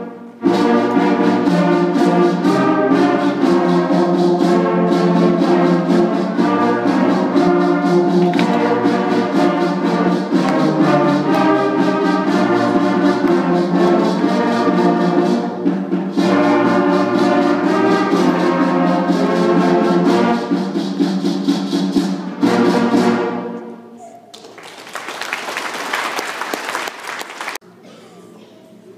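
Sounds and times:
school concert band playing: 0:00.0 - 0:27.9.

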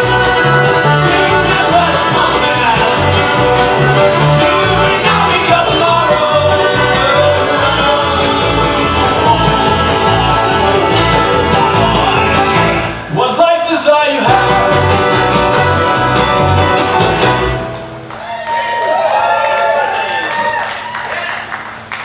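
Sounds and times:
alto saxophone lead: 0:00.0 - 0:13.1, 0:14.3 - 0:18.1
upright bass notes: 0:00.0 - 0:13.2, 0:14.2 - 0:18.1
strummed acoustic guitar: 0:00.0 - 0:13.3, 0:14.1 - 0:18.1.

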